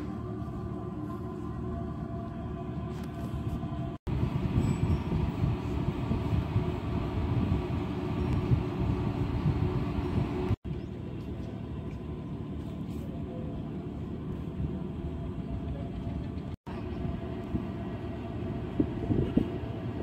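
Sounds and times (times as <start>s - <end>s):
ship engines low drone: 0.0s - 20.0s
wind buffeting microphone: 3.3s - 10.9s, 14.6s - 20.0s.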